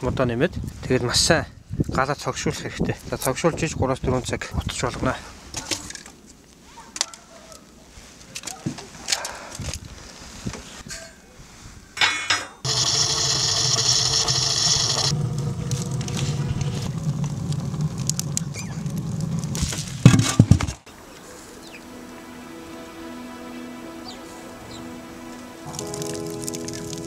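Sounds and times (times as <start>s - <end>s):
wood fire rumbling and crackling: 12.7s - 20.8s, 25.7s - 27.0s
wood pieces knocking and clattering: 19.4s - 20.9s, 25.7s - 27.0s.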